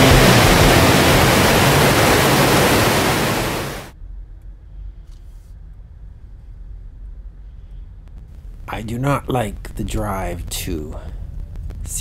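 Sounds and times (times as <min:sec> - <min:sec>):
waterfall roar: 0:00.0 - 0:03.9
faint low hum: 0:00.0 - 0:12.0.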